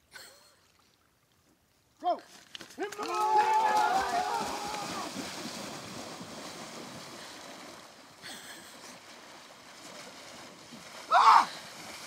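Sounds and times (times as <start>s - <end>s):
people splashing through water: 2.3s - 12.0s
loud splash: 3.1s - 8.0s.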